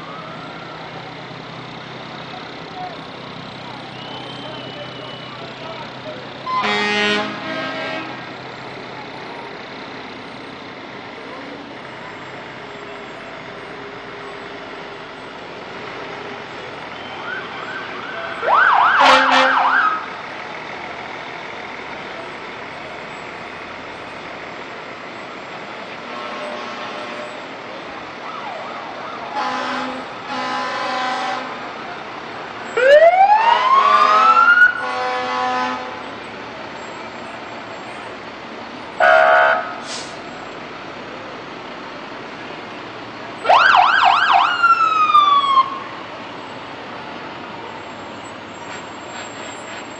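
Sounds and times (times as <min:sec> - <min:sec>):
engines and street noise: 0:00.0 - 0:49.9
siren whoop: 0:03.6 - 0:05.4, 0:17.0 - 0:20.1, 0:32.8 - 0:34.8, 0:43.4 - 0:46.0
fire truck horn blasts: 0:06.4 - 0:08.3, 0:18.7 - 0:20.1, 0:26.0 - 0:27.5, 0:29.3 - 0:31.8, 0:33.5 - 0:36.2, 0:39.0 - 0:40.2.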